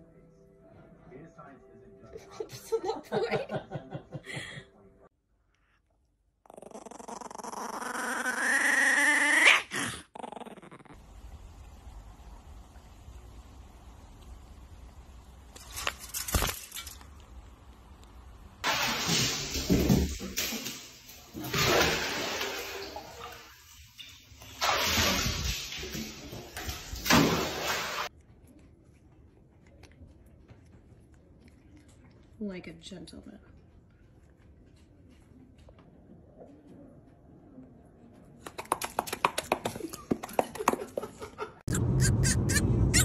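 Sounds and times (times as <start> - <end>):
puppy growling: 6.4 - 11.0
water splashing in bathtub: 18.6 - 28.1, 38.4 - 40.8.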